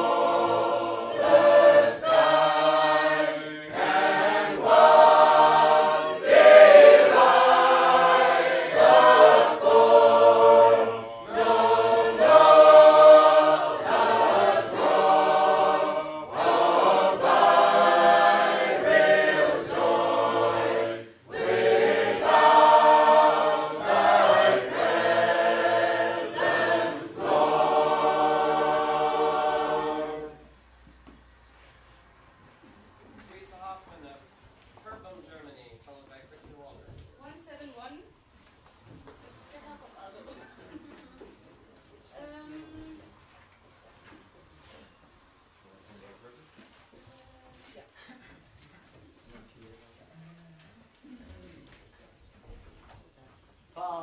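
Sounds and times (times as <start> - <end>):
choir singing a hymn a cappella: 0.0 - 30.6.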